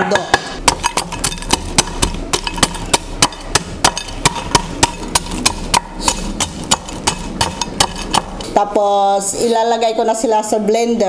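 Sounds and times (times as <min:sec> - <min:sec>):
wooden ladle pounding cookies: 0:00.0 - 0:08.5.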